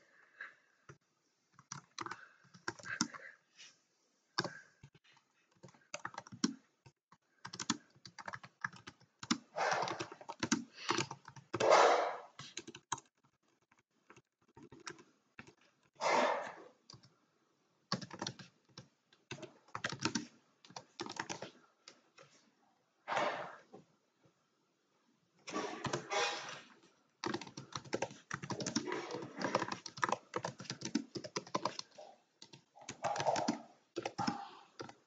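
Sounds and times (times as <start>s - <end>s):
computer keyboard typing: 0.9s - 3.3s, 4.4s - 11.7s, 12.4s - 15.9s, 16.9s - 17.1s, 17.9s - 22.3s, 27.2s - 35.0s.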